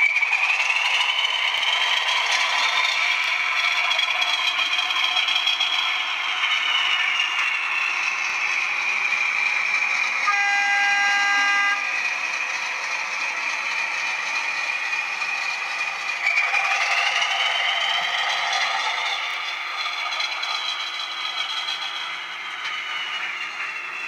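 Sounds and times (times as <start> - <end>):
model train wheels and motor whirring: 0.0 - 24.0
model train horn: 10.2 - 12.2.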